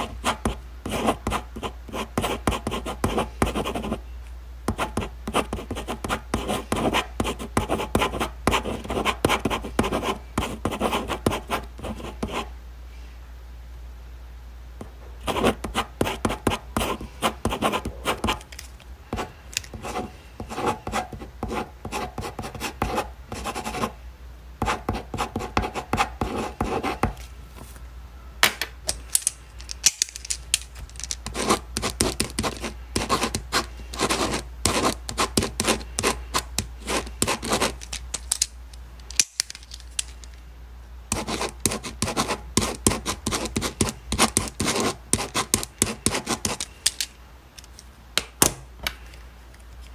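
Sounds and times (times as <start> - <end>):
pen writing on paper: 0.0 - 4.0, 4.7 - 12.4, 15.3 - 18.4, 19.2 - 23.9, 31.2 - 37.8, 41.1 - 46.6.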